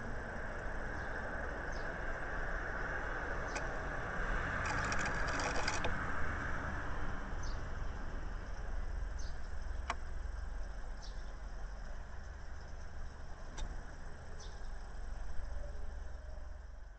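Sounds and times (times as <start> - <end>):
bird scratching in nest lining: 4.6 - 5.9.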